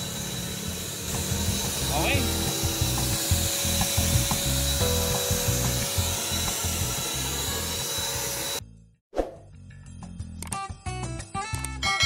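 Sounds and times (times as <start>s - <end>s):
paint sprayer airy hiss and whine: 0.0s - 8.6s.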